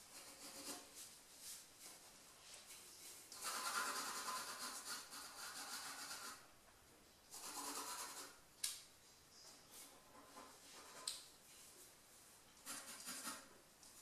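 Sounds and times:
pencil scratching on paper: 0.0s - 1.0s, 3.4s - 6.5s, 7.3s - 8.4s, 12.6s - 13.6s.

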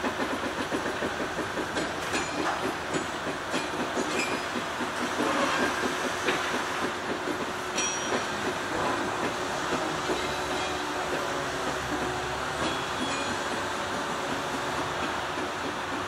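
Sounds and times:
diesel locomotive rumbling and clanking: 0.0s - 16.0s
wheel squeals: 4.0s - 6.0s, 9.8s - 11.0s.

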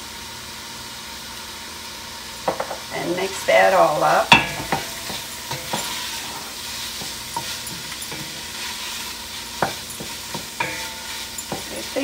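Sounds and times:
food sizzling in a pot: 0.0s - 12.0s
spoon knocking against pot: 4.3s - 6.0s, 9.6s - 11.9s
wooden spoon stirring: 4.3s - 12.0s.

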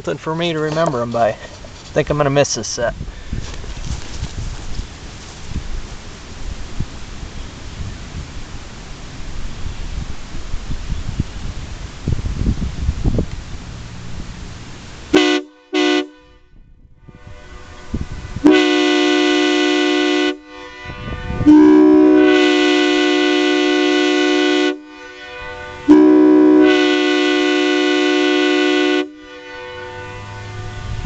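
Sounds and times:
train horn chord: 15.1s - 31.0s.

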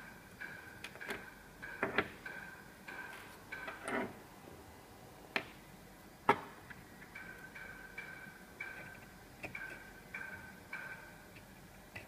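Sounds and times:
metal parts tapping and clicking: 0.4s - 4.2s, 6.3s - 12.0s.

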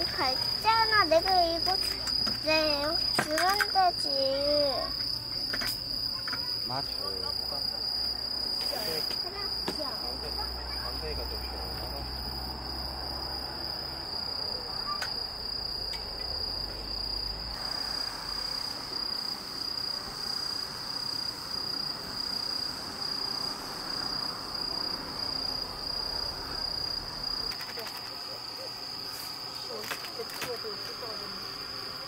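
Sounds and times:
crickets chirping: 0.0s - 32.0s
faint hiss of insects: 0.0s - 32.0s.

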